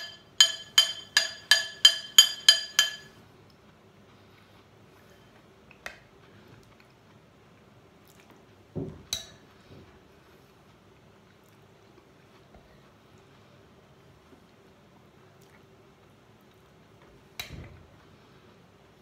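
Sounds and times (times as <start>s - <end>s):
spoon clinking on ceramic bowl: 0.0s - 3.2s
faint chewing: 3.4s - 8.6s, 10.3s - 13.6s, 14.2s - 17.1s.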